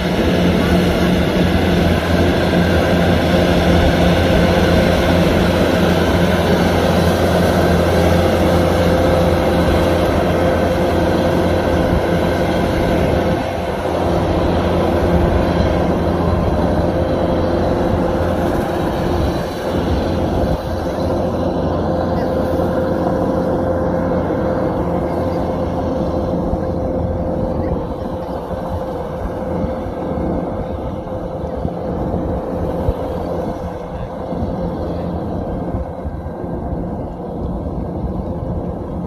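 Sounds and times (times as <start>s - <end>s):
combine harvester drone: 0.0s - 39.0s
high machinery whine: 0.0s - 39.0s.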